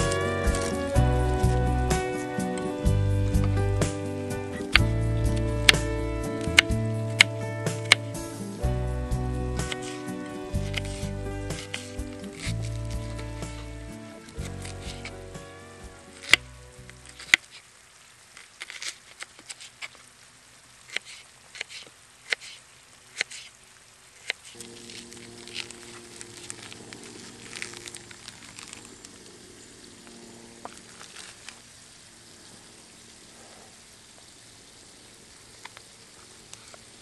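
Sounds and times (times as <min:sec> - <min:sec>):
low steady hum: 0:00.0 - 0:37.0.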